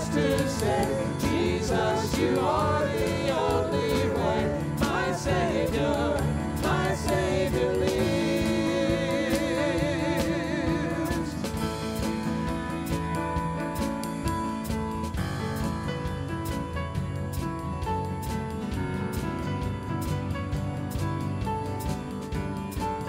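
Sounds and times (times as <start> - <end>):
voices singing gospel: 0.0 - 12.2.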